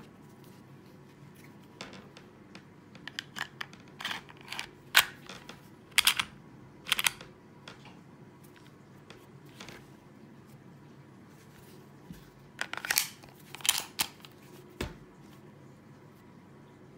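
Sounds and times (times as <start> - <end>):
pistol parts clicking and sliding: 6.0 - 6.3, 12.6 - 14.3.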